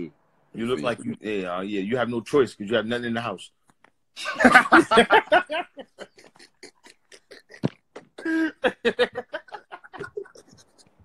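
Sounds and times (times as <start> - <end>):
men laughing: 4.2 - 11.0.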